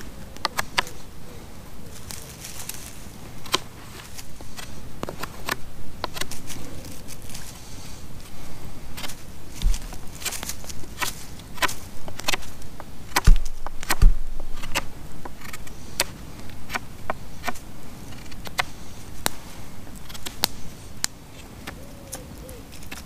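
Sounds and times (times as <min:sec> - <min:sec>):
heavy thumps: 0:08.9 - 0:14.9.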